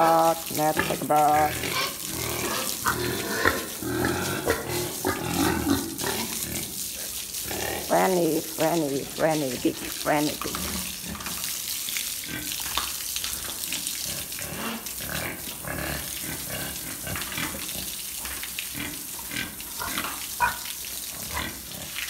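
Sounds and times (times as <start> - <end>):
pigs grunting: 0.0 - 11.4, 13.9 - 22.0
hose spraying water on concrete: 0.0 - 22.0.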